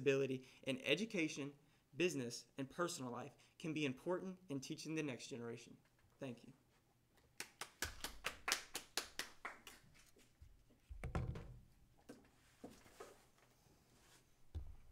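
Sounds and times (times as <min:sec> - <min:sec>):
thin applause: 0:07.4 - 0:09.9
phone handling thump and rustling: 0:11.0 - 0:11.6.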